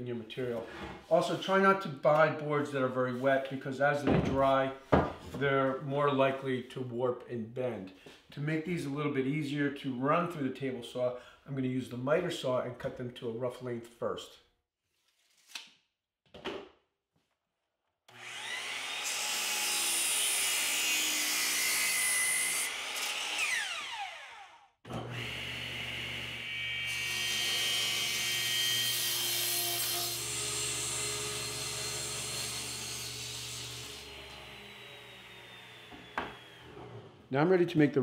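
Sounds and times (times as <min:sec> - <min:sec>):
miter saw cutting wood: 0:18.1 - 0:37.0
table saw ripping wood: 0:18.1 - 0:37.3.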